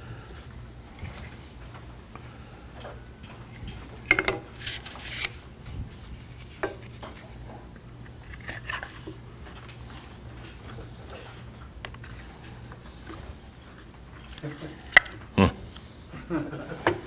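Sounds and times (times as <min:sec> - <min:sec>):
wooden pieces knocking on metal: 0:04.1 - 0:04.5.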